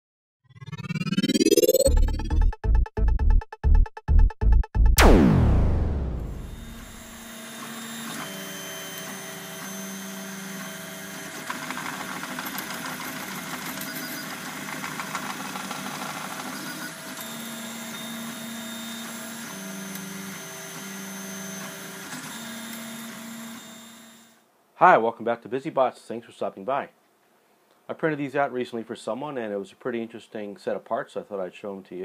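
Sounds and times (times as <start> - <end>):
stepper motors whining: 5.9 - 24.2
printer whirring: 6.6 - 23.6.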